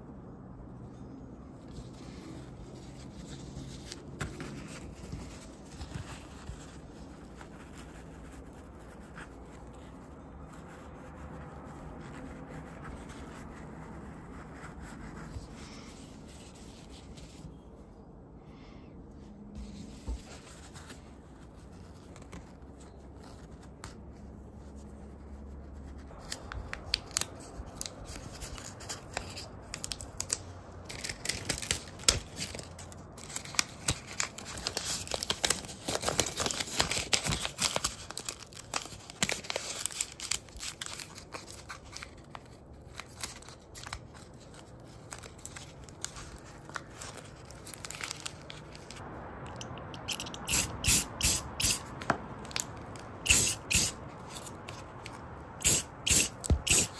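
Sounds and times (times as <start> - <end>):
tape pulled and torn: 47.8 - 56.9.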